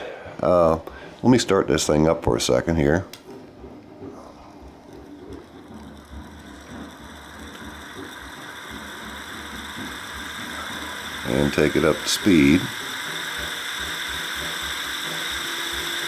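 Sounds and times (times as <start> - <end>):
faint steady whine: 0.0 - 16.0
spinner clicking rattle: 4.5 - 16.0.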